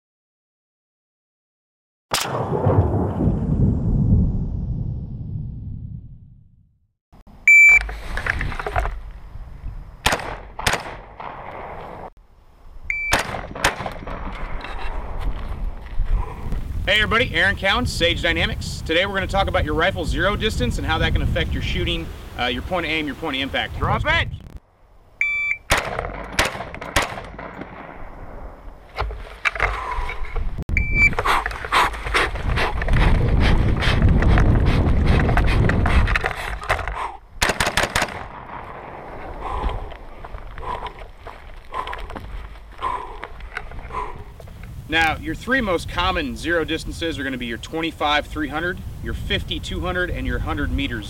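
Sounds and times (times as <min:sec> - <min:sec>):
rifle shots: 0:02.1 - 0:02.8, 0:10.0 - 0:11.5, 0:13.1 - 0:14.3, 0:25.7 - 0:28.5, 0:37.4 - 0:39.2
low rumble: 0:02.3 - 0:06.8
shot timer beep: 0:07.5 - 0:07.9, 0:12.9 - 0:13.2, 0:25.2 - 0:25.7, 0:30.8 - 0:31.2.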